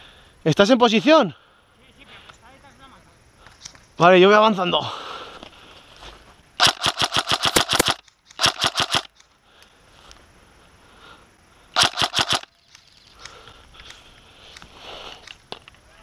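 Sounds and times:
airsoft rifle firing bursts: 6.6 - 9.2, 11.8 - 12.7.

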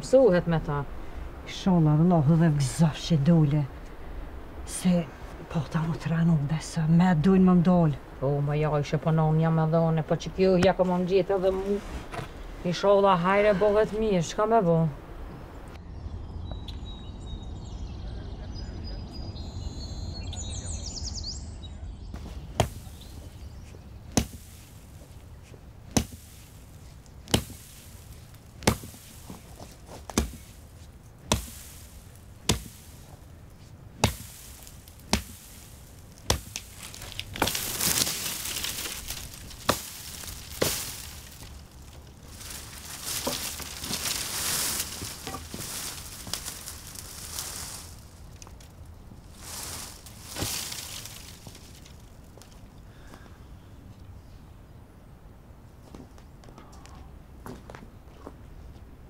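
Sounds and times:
rustling: 10.5 - 13.0, 22.2 - 52.8
axe chopping brushwood: 22.5 - 23.0, 24.1 - 24.5, 25.9 - 26.3, 27.3 - 27.8, 28.6 - 29.1, 30.1 - 30.6, 31.2 - 31.8, 32.4 - 32.9, 34.0 - 35.6, 36.2 - 38.1, 39.5 - 41.2.

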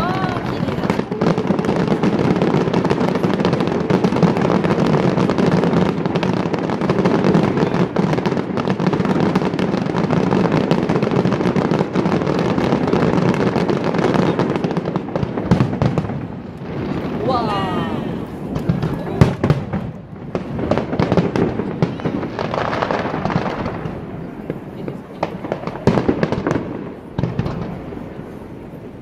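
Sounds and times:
firework bangs and crackles: 0.0 - 29.0.

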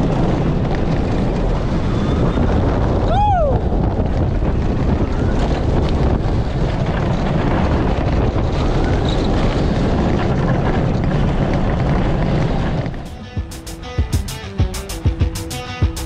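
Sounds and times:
roller coaster rumble: 0.0 - 16.0
wind rushing over microphone: 0.0 - 16.0
plucked guitar music: 13.0 - 16.0.

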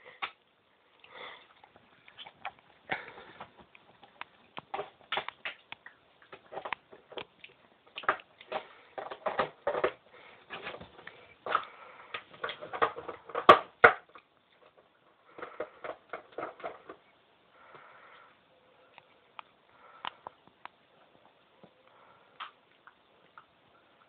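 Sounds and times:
rustling: 0.0 - 24.0.

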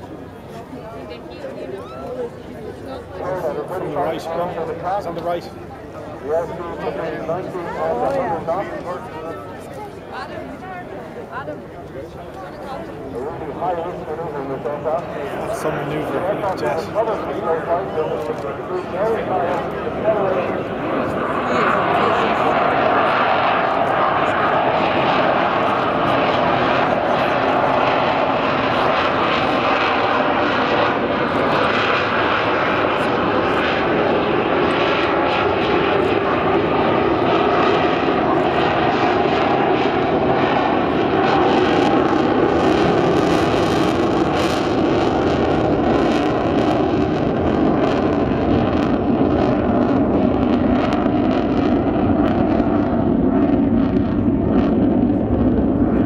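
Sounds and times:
fighter jet engines roaring: 0.0 - 56.0.

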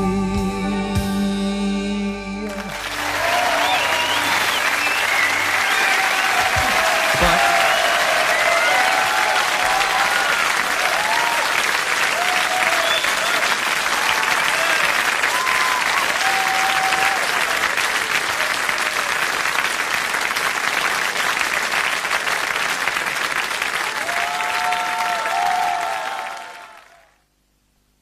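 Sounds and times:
audience applauding: 2.5 - 27.2.

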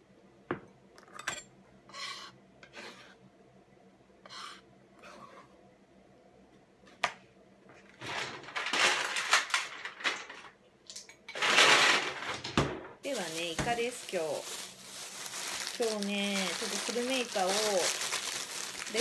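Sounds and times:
rustling scrapes of herbs: 13.0 - 19.0.

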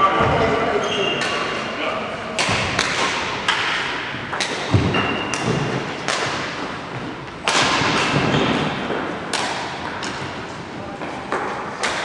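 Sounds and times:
ball hits echoing in a hall: 0.0 - 12.0.

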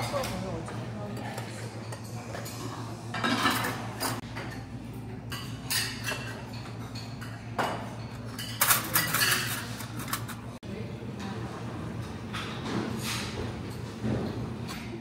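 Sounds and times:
dishes and cutlery clattering: 0.0 - 10.6, 12.0 - 15.0.

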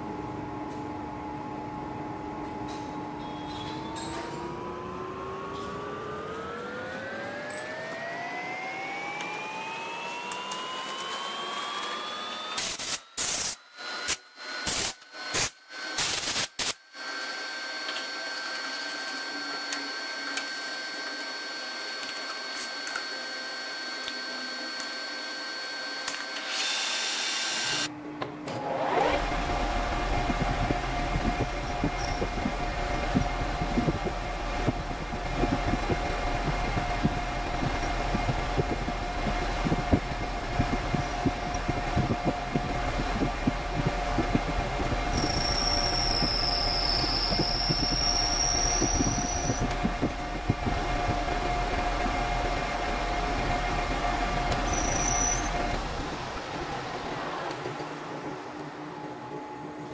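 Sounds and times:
metal lathe whine: 3.2 - 12.8, 16.9 - 27.9, 28.7 - 57.2
lathe spindle low hum: 17.0 - 59.9.

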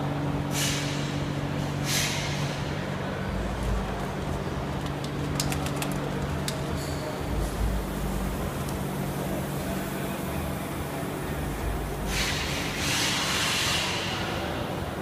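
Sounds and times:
low mechanical hum: 0.0 - 15.0
loud hiss: 11.9 - 14.5.

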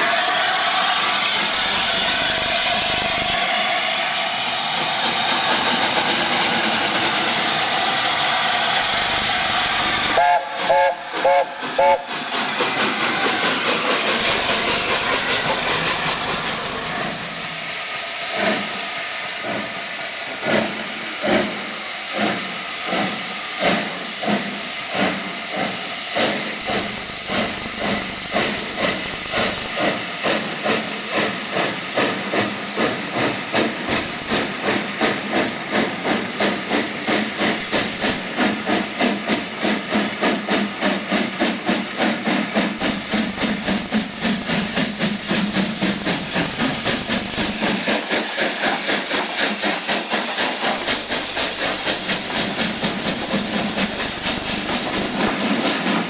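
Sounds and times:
steam locomotive exhaust beats: 0.0 - 56.0
steam locomotive hissing: 0.0 - 56.0
steam whistle toots: 10.0 - 12.1.

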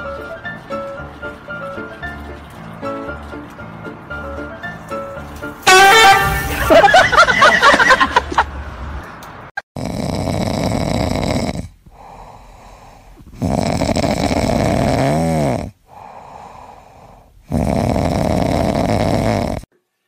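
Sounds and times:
cat snoring: 9.8 - 19.7.

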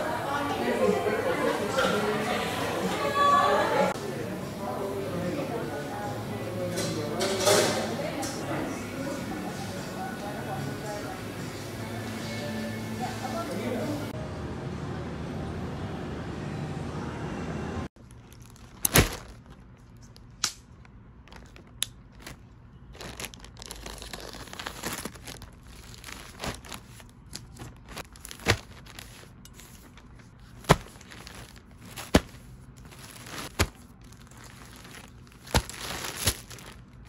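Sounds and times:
plastic bags crinkling: 18.0 - 20.4, 21.2 - 37.0.

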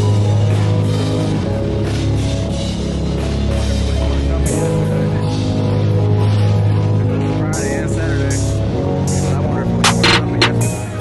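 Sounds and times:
rock music with drums and guitar: 9.8 - 10.7.

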